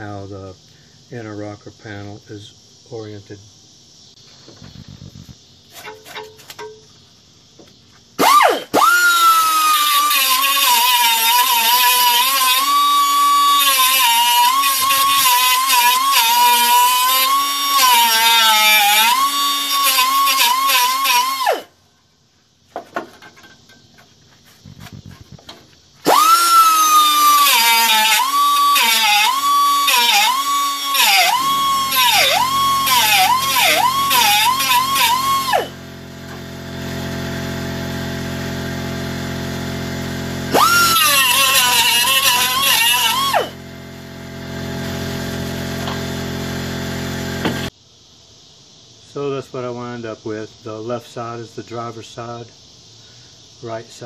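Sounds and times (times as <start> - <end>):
angle grinder grinding steel: 8.2 - 21.7, 26.0 - 38.8, 40.4 - 43.7.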